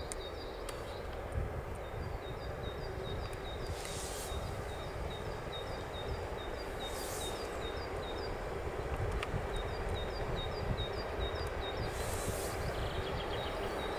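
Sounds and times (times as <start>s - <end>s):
distant locomotive rumble: 0.0s - 13.9s
brief hisses: 3.8s - 4.4s, 11.9s - 12.6s
bird chirping: 9.5s - 13.9s.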